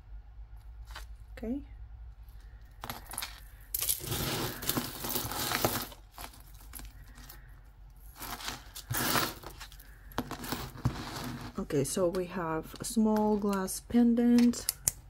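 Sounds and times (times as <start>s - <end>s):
metal chains and beads clinking: 2.7s - 7.4s, 8.0s - 11.6s.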